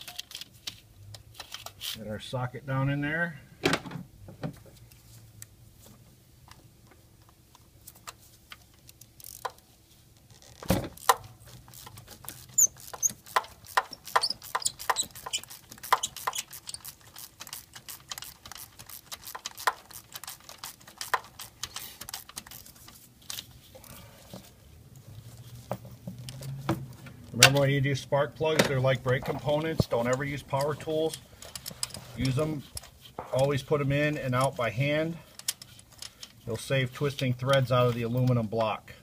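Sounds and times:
hand ratchet clicking: 0:08.9 - 0:09.6, 0:10.3 - 0:23.0.

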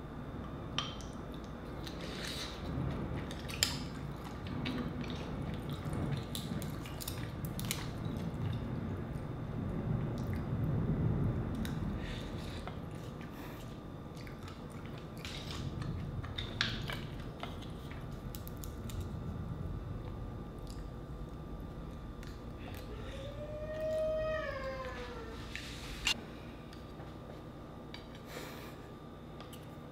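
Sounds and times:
chewing mussels: 0:01.2 - 0:08.7, 0:11.6 - 0:19.2.

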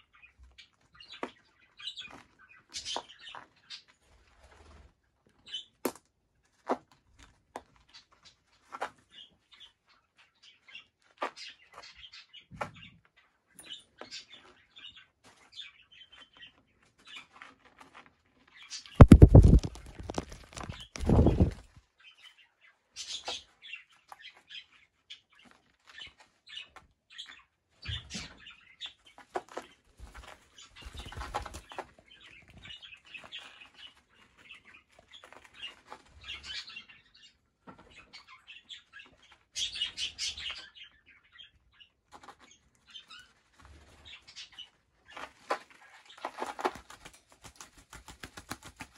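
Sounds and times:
birds flapping wings: 0:19.0 - 0:21.7, 0:30.8 - 0:31.8, 0:46.4 - 0:48.9.

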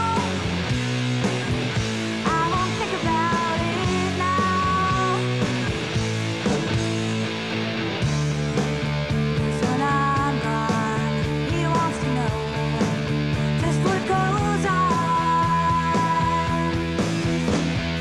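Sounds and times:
lead guitar long high note: 0:00.0 - 0:11.4
rock music with electric guitars: 0:00.0 - 0:18.0.

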